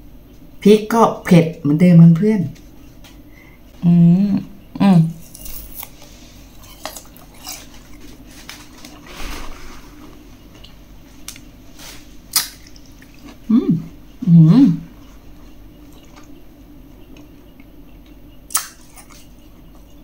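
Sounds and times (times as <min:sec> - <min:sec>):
person humming: 0:03.8 - 0:05.2, 0:13.5 - 0:14.9
wet squishy chewing: 0:12.3 - 0:13.5, 0:15.8 - 0:16.4, 0:17.1 - 0:19.9.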